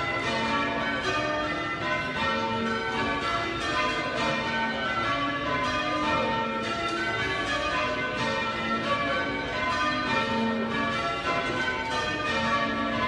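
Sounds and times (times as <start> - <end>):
church bells change ringing: 0.0 - 13.0.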